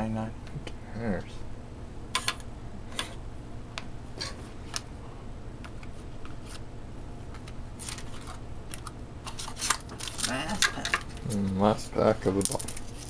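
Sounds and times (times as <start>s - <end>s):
trading cards flipped through: 5.7s - 6.6s.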